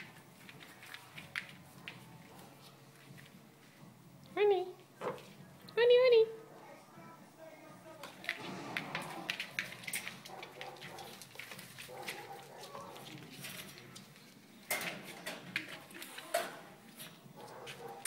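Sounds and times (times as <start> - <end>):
puppies scuffling on vinyl floor: 0.0 - 3.8, 8.1 - 18.0.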